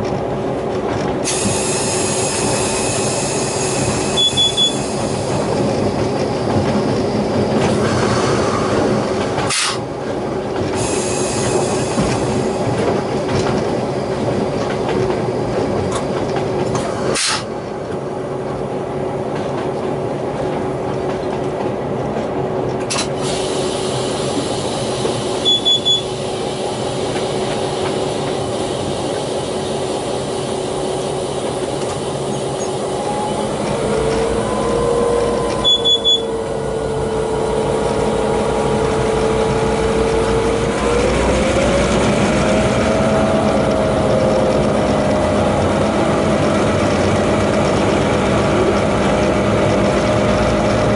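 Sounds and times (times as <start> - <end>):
locomotive engine drone: 0.0 - 50.9
wheels on rails: 26.7 - 50.9
short high beeps: 35.6 - 36.4.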